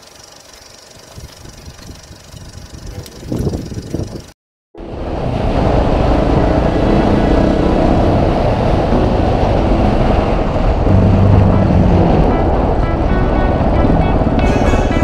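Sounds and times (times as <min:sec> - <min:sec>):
heavy wind noise: 0:01.2 - 0:15.0
motorcycle engine revving: 0:05.6 - 0:14.6.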